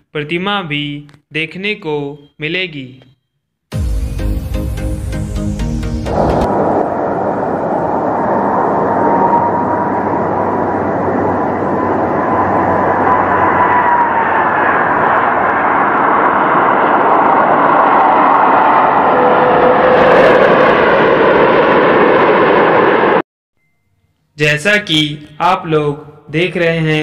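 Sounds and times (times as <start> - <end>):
jet engines rushing and whining: 3.8 - 23.2.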